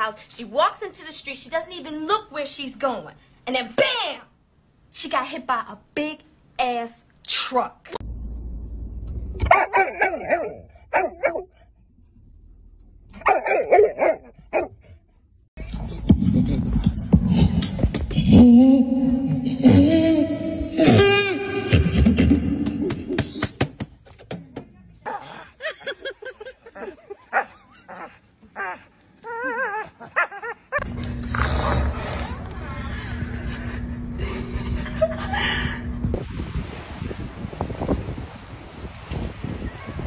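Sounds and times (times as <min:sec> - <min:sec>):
dog barking: 0:09.4 - 0:11.5, 0:13.2 - 0:14.8
dog yelping and whining: 0:26.8 - 0:30.8.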